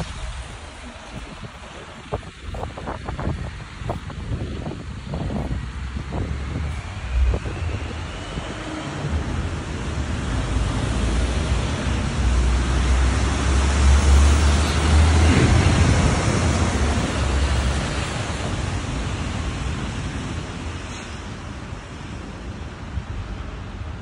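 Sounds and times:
wind rumbling on microphone: 0:00.0 - 0:24.0
vehicle passing close by: 0:05.8 - 0:20.3.

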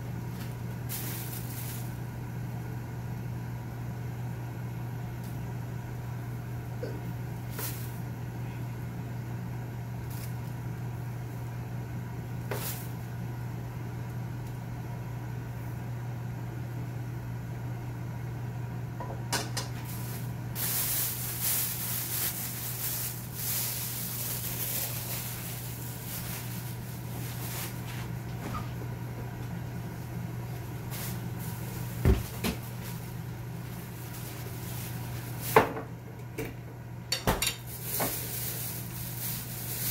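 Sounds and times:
rustling: 0:19.8 - 0:28.2.

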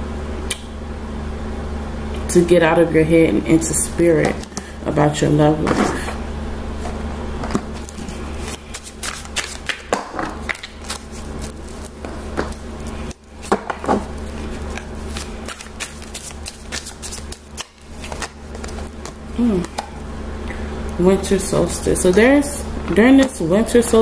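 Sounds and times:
steady low hum: 0:00.0 - 0:24.0
cards being shuffled: 0:06.8 - 0:19.9.

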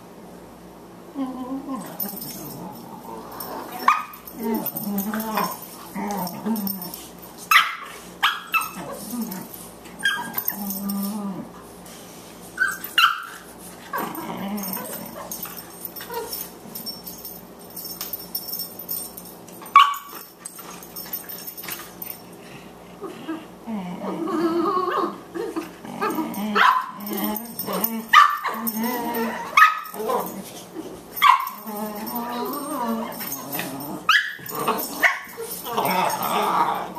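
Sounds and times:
dogs play growling: 0:01.1 - 0:36.9
dog yipping: 0:34.1 - 0:35.5.

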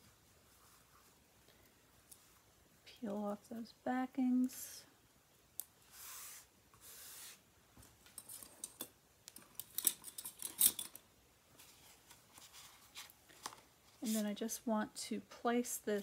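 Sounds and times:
backing paper peeling hiss: 0:05.8 - 0:07.5, 0:13.9 - 0:14.5.

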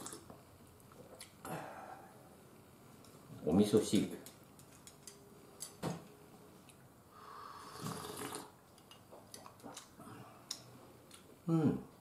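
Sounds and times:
person slurping soup: 0:07.4 - 0:08.6.

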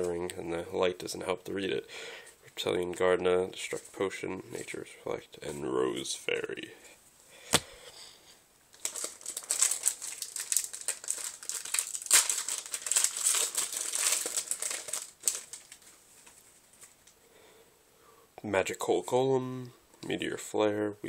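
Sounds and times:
foil wrapper crinkling: 0:08.7 - 0:17.1.

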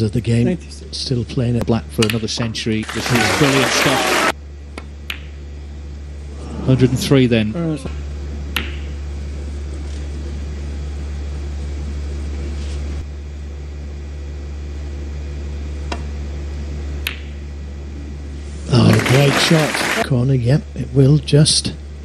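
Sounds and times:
steady low hum: 0:00.0 - 0:22.0
snooker balls clicking: 0:04.7 - 0:05.4, 0:08.5 - 0:08.9, 0:17.0 - 0:17.4.

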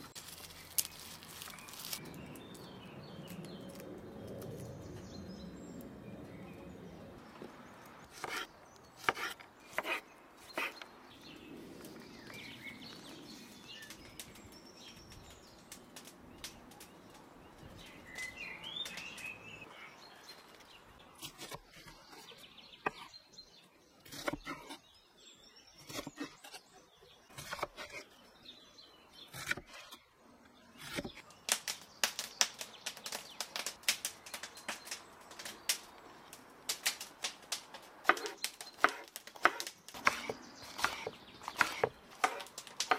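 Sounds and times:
birds chirping: 0:00.0 - 0:42.9
knife chopping on wooden board: 0:38.1 - 0:42.9.

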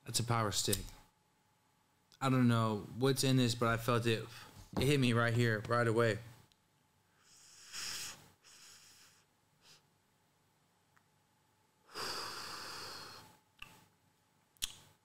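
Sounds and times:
man exhaling smoke: 0:11.9 - 0:13.3
man inhaling: 0:11.9 - 0:13.4.

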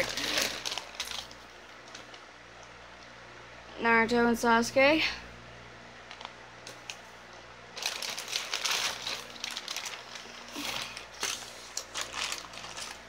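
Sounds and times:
crinkling and rustling: 0:00.0 - 0:02.3, 0:06.0 - 0:13.0.

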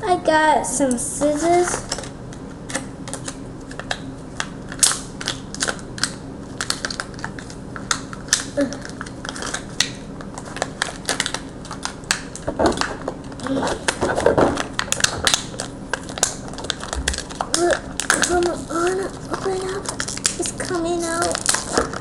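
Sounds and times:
scissors snipping plastic: 0:12.1 - 0:22.0.

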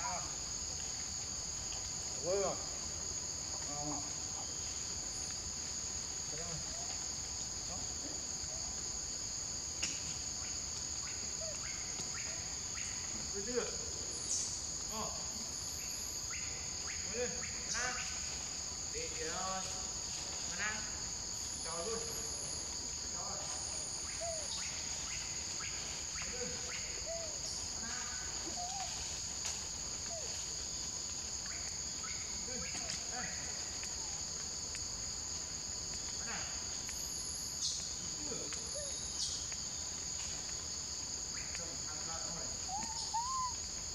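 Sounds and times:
high-pitched insect chorus: 0:00.0 - 0:43.9
faint squeaky calls: 0:23.4 - 0:29.2, 0:42.3 - 0:43.7.

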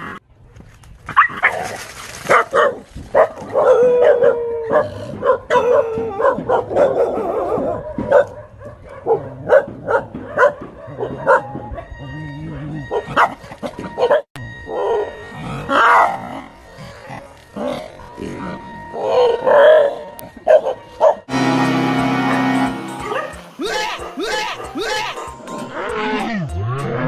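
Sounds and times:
dogs barking and yelping: 0:01.1 - 0:21.3, 0:22.9 - 0:27.0
dog howling: 0:03.5 - 0:07.8, 0:23.0 - 0:26.2.

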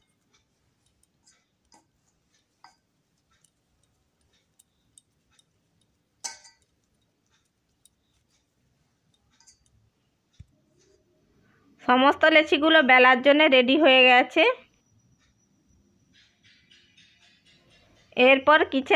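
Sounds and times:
dough taps and clicks: 0:00.0 - 0:11.1.

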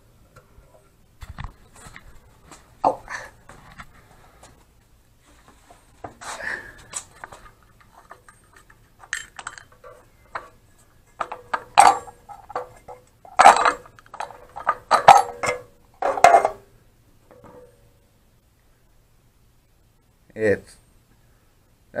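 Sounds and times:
metal parts clinking and knocking: 0:07.0 - 0:16.7.

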